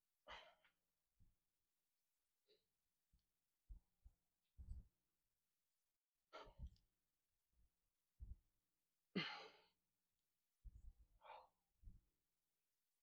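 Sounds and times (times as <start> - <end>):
soft low thumps: 3.6 - 5.0, 8.2 - 8.5.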